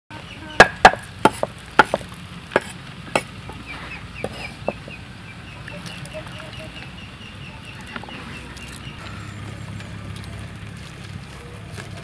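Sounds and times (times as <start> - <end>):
knife chopping on wooden board: 0.6 - 2.0.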